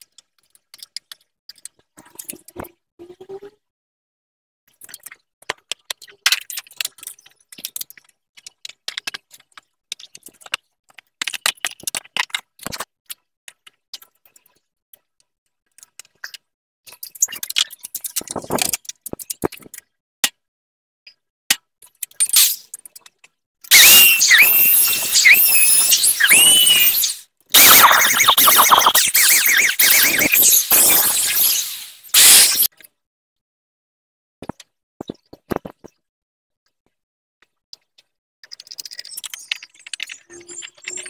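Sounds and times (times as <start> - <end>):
plastic parts clicking and knocking: 0.0 - 2.8, 4.7 - 20.5, 21.1 - 23.4, 34.4 - 36.1
electric drill boring into plastic: 23.7 - 27.2.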